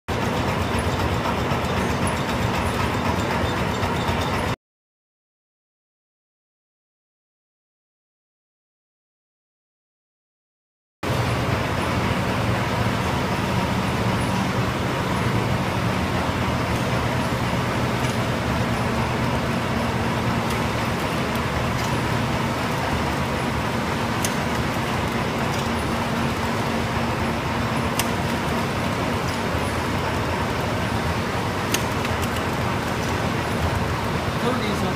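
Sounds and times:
machine hum with high whine: 11.0 - 34.9
faint mechanism clicks: 31.6 - 33.3.

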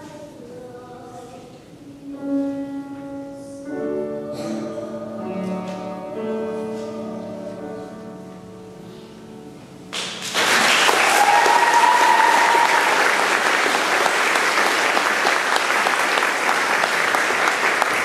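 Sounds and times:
held music notes: 0.0 - 10.4
audience applause: 10.0 - 18.0
whooping cheer: 10.5 - 13.7.

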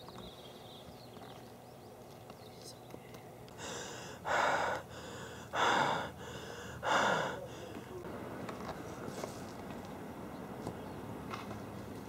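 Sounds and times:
faint outdoor background: 0.0 - 12.0
person breathing loudly: 3.6 - 8.0.

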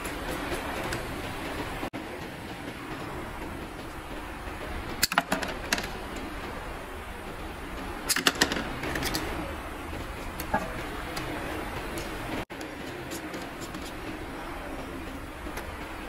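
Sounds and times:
plastic parts clicking and rattling: 8.1 - 9.4.

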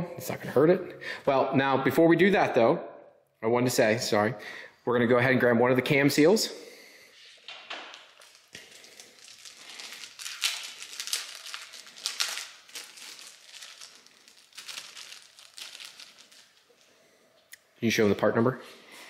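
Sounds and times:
plastic packaging crinkling: 7.3 - 17.0.

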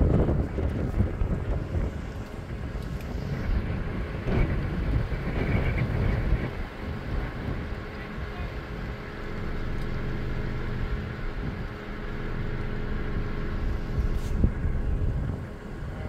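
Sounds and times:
vehicle engine rumbling: 0.0 - 16.0
rustling noise: 13.7 - 14.8.

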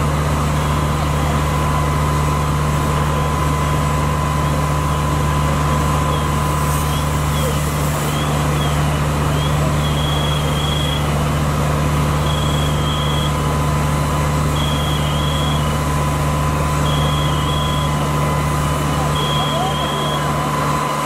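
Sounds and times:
engine droning: 0.0 - 21.0
short high beeps: 8.1 - 11.1, 12.2 - 13.4, 14.5 - 15.7, 16.8 - 18.0, 19.1 - 20.4.

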